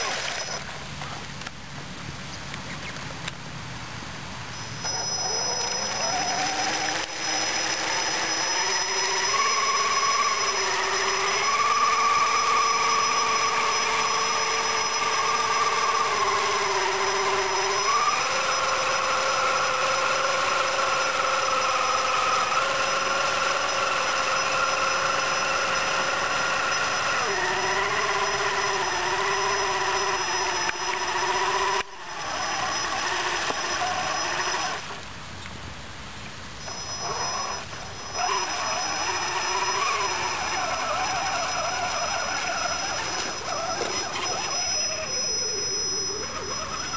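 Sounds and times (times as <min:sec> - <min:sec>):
electric motor whining: 0:00.0 - 0:00.8, 0:04.5 - 0:35.0, 0:36.6 - 0:46.9.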